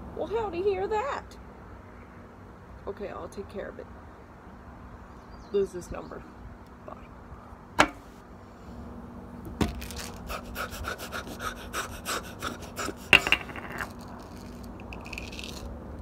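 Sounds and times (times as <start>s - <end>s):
plastic cup clicks and rubbing: 12.9s - 15.7s
plastic cup knock: 13.2s - 13.9s.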